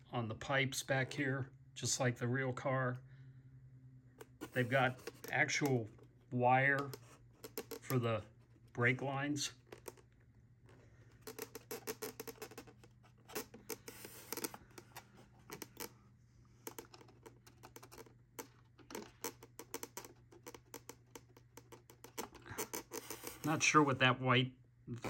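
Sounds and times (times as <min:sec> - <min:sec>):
hands clicking and tapping model car: 0:16.6 - 0:23.4.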